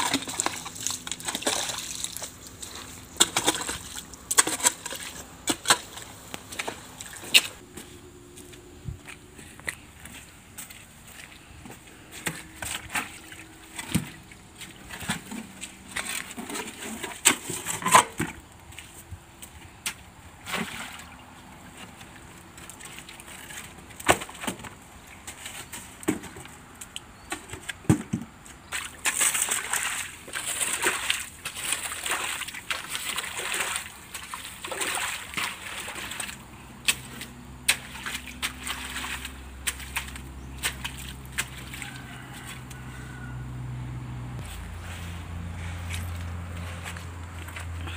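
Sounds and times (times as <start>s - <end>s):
hoe chopping through mud: 0.0s - 7.6s, 22.6s - 42.8s
water sloshing and splashing: 0.0s - 43.5s, 44.4s - 47.9s.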